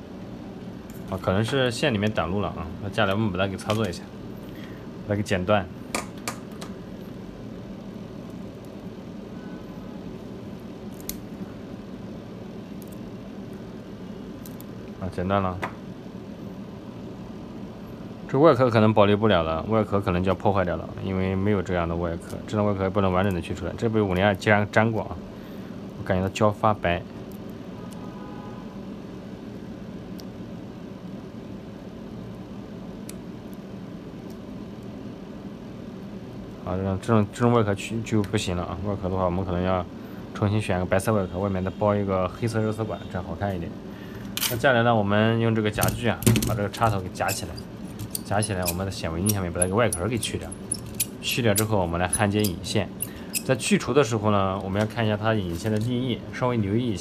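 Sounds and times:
low background hum: 0:00.0 - 0:57.0
wire cutters snipping cable: 0:45.8 - 0:53.6.

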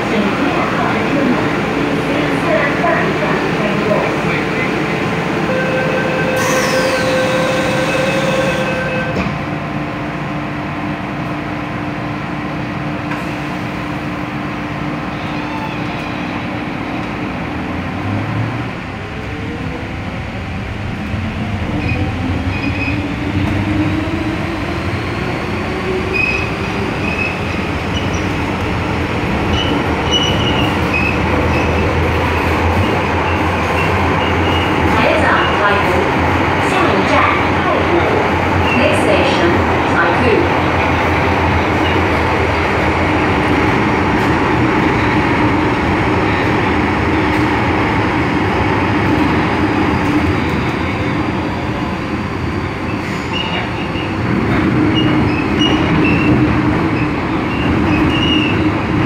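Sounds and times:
train pulling away: 0:00.0 - 0:09.4.

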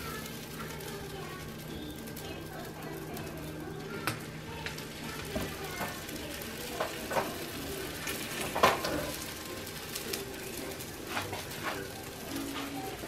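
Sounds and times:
oil sizzling in a frying pan: 0:00.0 - 0:13.0
utensils knocking against pan: 0:06.7 - 0:09.3, 0:11.1 - 0:11.8.

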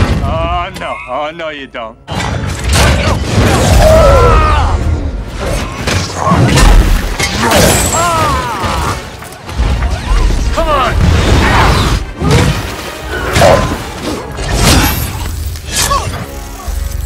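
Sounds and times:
strained shouts and growls: 0:03.4 - 0:09.1.

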